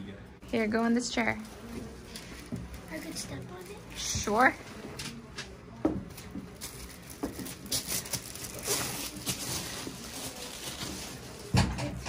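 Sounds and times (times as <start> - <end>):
shuffling and rustling: 6.1 - 11.5.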